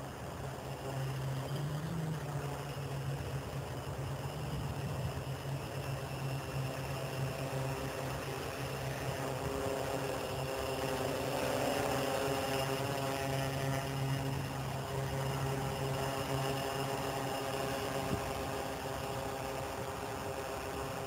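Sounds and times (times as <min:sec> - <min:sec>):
drone propellers buzzing: 0:00.0 - 0:21.0.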